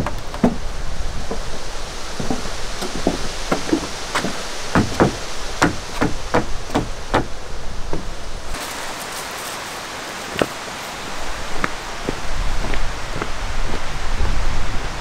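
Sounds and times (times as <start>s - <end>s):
boots stepping on wooden deck: 0.0s - 9.6s, 10.3s - 10.6s, 11.5s - 13.9s
outdoor hiss: 0.0s - 15.0s
wooden knock: 2.2s - 7.3s.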